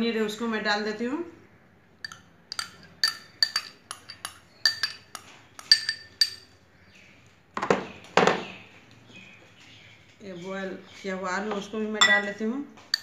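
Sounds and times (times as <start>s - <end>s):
metal spoon clinking on glass bowl: 2.0s - 6.5s, 12.0s - 13.0s.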